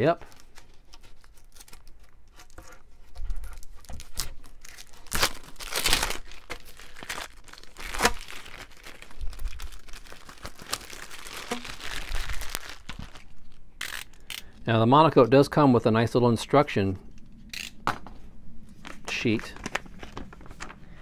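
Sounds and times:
plastic packaging crinkling: 0:00.0 - 0:14.5, 0:18.8 - 0:21.0.

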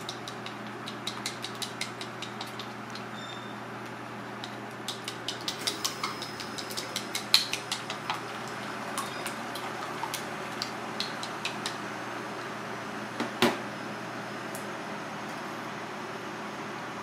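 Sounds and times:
chopsticks clicking against bowl: 0:00.0 - 0:03.1, 0:04.4 - 0:09.4
steady hum: 0:00.0 - 0:17.0.

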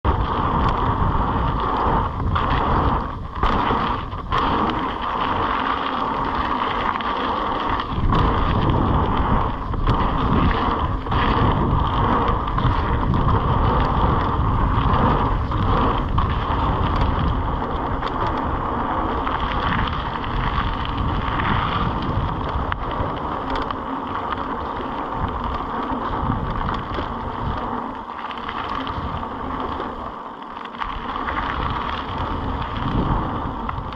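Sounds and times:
bike tyres rolling: 0:00.0 - 0:33.9
wind rushing: 0:07.5 - 0:23.3.

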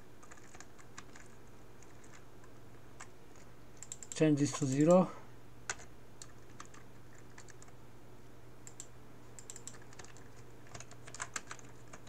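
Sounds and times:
faint steady hum: 0:00.0 - 0:12.0
computer keyboard typing: 0:00.2 - 0:02.2, 0:03.0 - 0:04.9, 0:05.7 - 0:07.7, 0:08.6 - 0:12.0.

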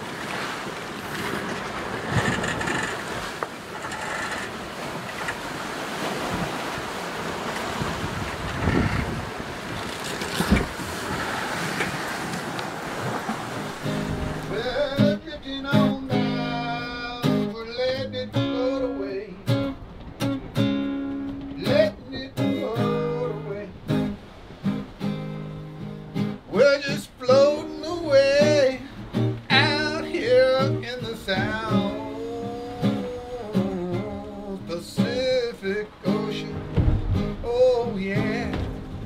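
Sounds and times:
strummed acoustic guitar: 0:13.4 - 0:39.0
person singing: 0:14.5 - 0:19.4, 0:21.6 - 0:23.7, 0:26.5 - 0:28.9, 0:29.5 - 0:36.6, 0:37.4 - 0:38.8.

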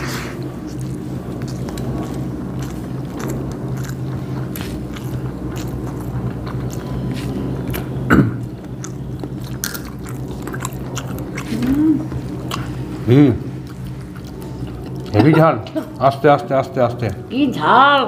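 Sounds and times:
people chewing and smacking: 0:00.0 - 0:17.2
steady low hum: 0:00.0 - 0:18.0.

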